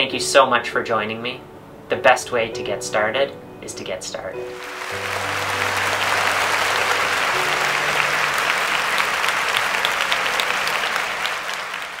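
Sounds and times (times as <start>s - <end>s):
crowd applauding: 4.5s - 12.0s.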